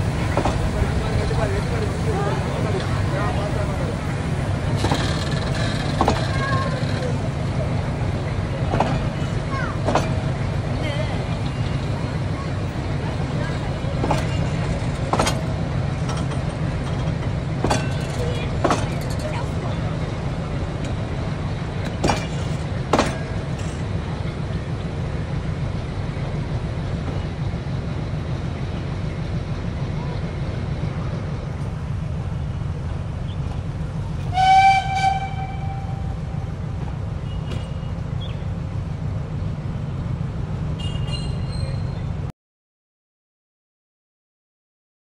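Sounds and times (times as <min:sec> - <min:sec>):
sharp train clacks: 0:00.0 - 0:31.8, 0:33.3 - 0:38.7, 0:40.7 - 0:42.0
train rumbling: 0:00.0 - 0:42.3
steam locomotive whistle: 0:34.3 - 0:36.2.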